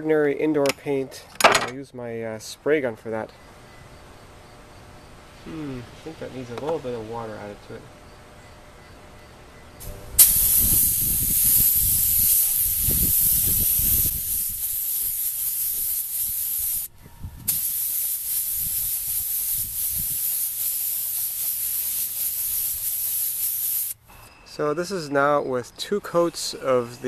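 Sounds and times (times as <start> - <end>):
paint spray gun hissing: 9.8 - 24.0.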